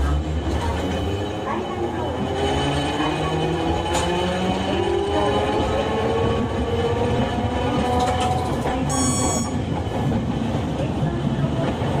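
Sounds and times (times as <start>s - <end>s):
streetcar wheels rumbling on rail: 0.0s - 12.0s
brief high ringing tone: 8.9s - 9.6s.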